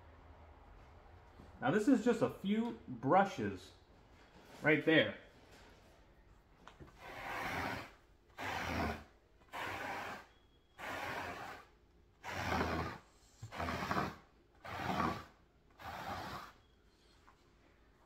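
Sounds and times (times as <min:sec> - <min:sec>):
rubber brush rasping on rug: 0:06.8 - 0:16.6.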